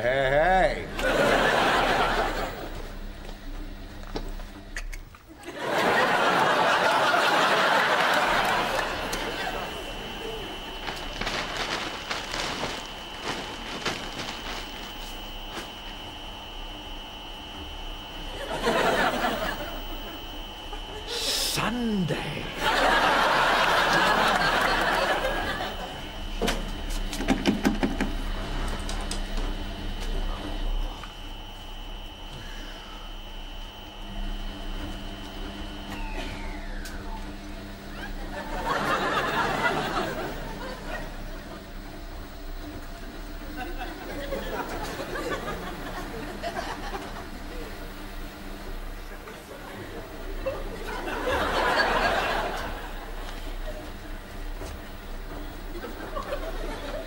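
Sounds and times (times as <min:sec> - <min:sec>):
studio audience laughing: 0:00.8 - 0:03.1, 0:05.3 - 0:11.2, 0:18.2 - 0:21.4, 0:22.2 - 0:26.5, 0:37.9 - 0:42.1, 0:43.4 - 0:48.3, 0:49.1 - 0:54.3, 0:55.3 - 0:57.0.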